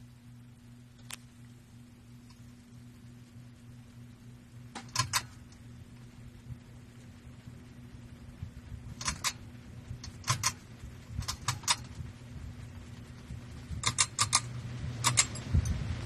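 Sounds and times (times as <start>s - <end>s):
ceiling fan motor humming: 0.0s - 16.0s
rushing air: 8.3s - 16.0s
sharp light clicks: 13.8s - 15.8s.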